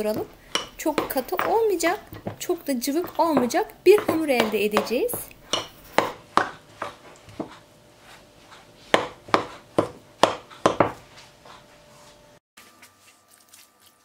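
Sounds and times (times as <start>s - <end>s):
metal utensil tapping glass bowl: 0.1s - 2.3s.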